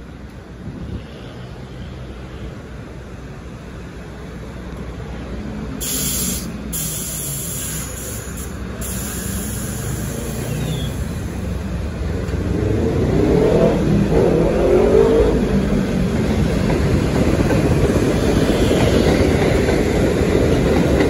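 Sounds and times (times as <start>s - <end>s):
subway train rumbling: 0.0s - 21.0s
air hisses: 5.8s - 11.5s.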